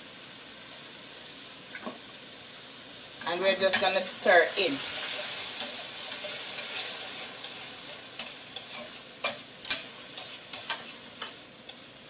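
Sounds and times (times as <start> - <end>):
food sizzling in frying pan: 0.0 - 12.0
utensil scraping pan: 3.6 - 12.0.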